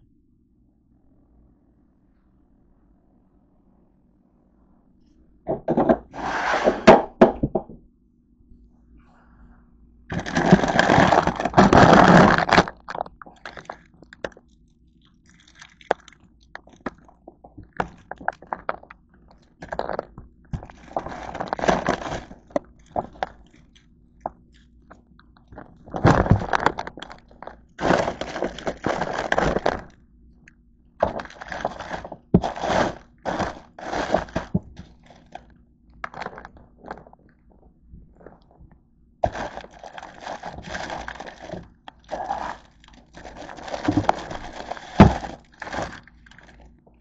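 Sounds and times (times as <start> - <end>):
plastic bags crinkling: 10.1 - 30.0, 31.0 - 37.3, 39.2 - 46.7.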